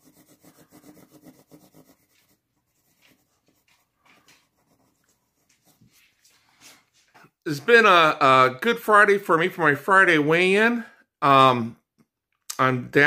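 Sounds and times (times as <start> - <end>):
pen scribbling on paper: 0.0 - 6.2.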